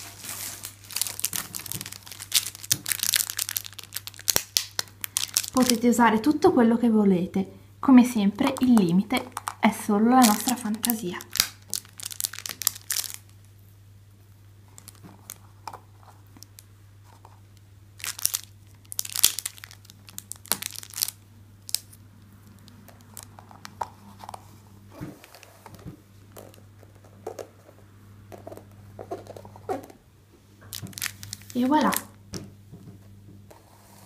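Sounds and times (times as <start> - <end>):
rustling and crinkling: 0.0 - 6.0, 14.6 - 30.0, 30.6 - 32.1
steady low hum: 0.0 - 34.0.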